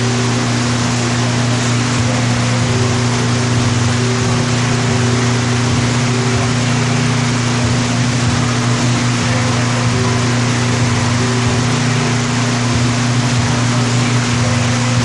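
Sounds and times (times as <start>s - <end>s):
air rushing from fans: 0.0s - 15.0s
electric fans motor hum: 0.0s - 15.0s.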